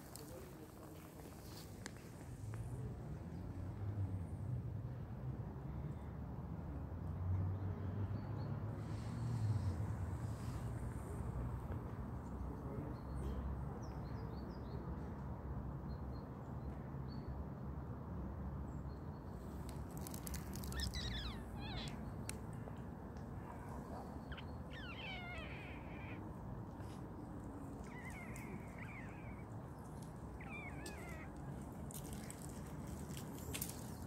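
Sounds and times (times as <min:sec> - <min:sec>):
cat meowing: 0:20.0 - 0:22.0, 0:24.3 - 0:26.2, 0:27.8 - 0:29.6, 0:30.4 - 0:31.6.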